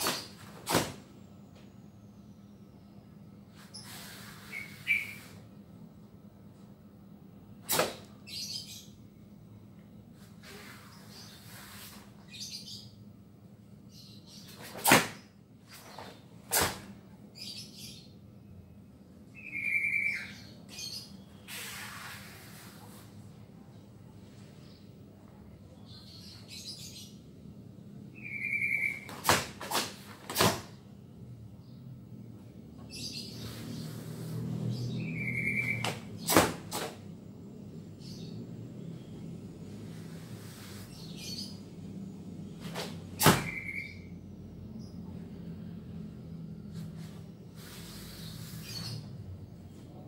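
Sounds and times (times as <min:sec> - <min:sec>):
bird chirp: 0:02.0 - 0:05.4, 0:08.2 - 0:09.3, 0:10.5 - 0:13.1, 0:17.3 - 0:18.6, 0:19.3 - 0:23.0, 0:28.1 - 0:29.2, 0:32.8 - 0:36.3, 0:37.8 - 0:42.6, 0:43.3 - 0:45.4, 0:46.2 - 0:50.0.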